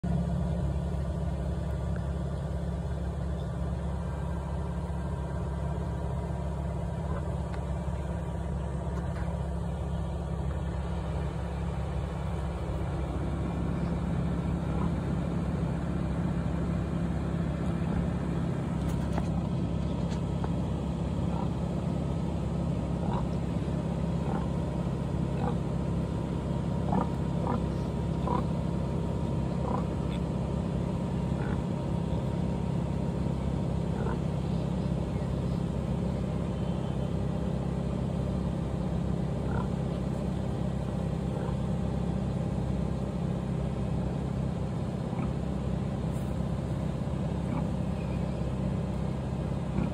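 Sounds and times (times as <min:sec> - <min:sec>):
engine idling: 0:00.0 - 0:49.9.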